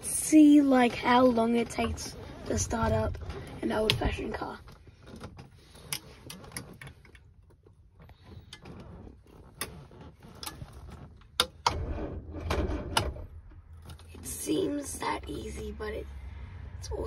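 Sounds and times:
gear lever and controls clicking: 1.7s - 14.2s.

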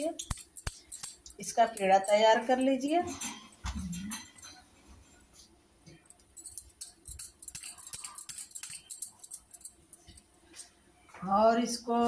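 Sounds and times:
bangles clinking: 0.0s - 2.3s, 6.0s - 10.7s.

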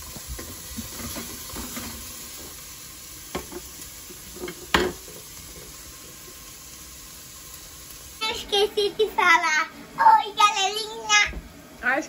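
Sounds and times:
onions sizzling in a pot: 0.0s - 12.0s
spoon scraping and knocking pot: 4.3s - 5.2s.

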